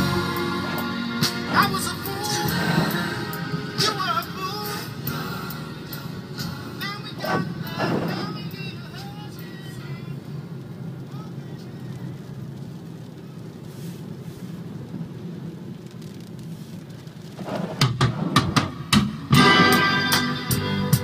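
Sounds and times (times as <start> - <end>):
car engine and tyres on wet road: 0.0 - 21.0
sharp knocks and clatter: 17.5 - 19.2.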